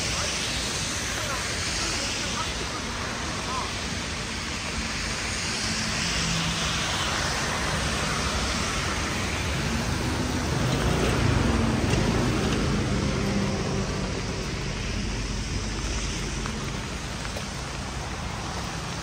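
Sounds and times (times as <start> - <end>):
rain hissing: 0.0 - 19.0
traffic on wet street: 0.0 - 19.0
car engine passing: 5.7 - 19.0.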